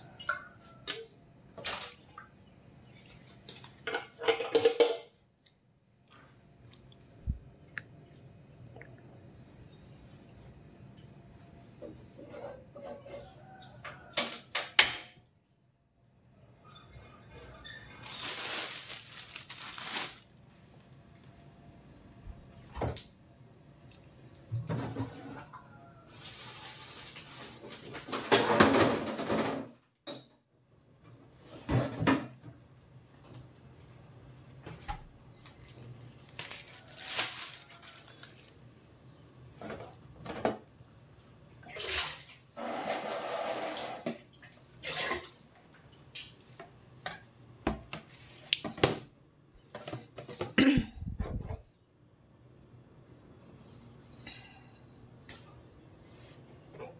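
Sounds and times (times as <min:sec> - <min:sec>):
pots and dishes clattering: 0:03.4 - 0:05.2, 0:24.6 - 0:25.8, 0:27.2 - 0:30.4.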